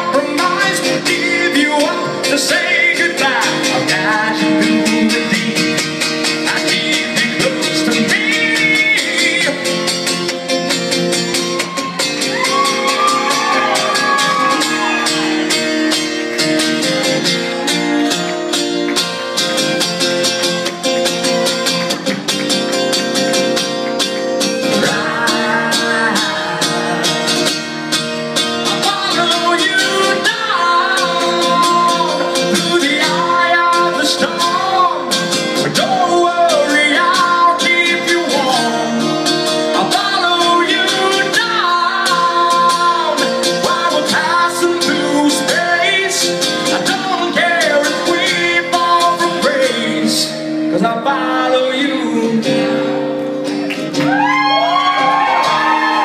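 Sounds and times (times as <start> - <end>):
person singing: 0.0 - 10.4, 24.6 - 27.7, 28.5 - 56.0
acoustic guitar chords: 0.0 - 56.0.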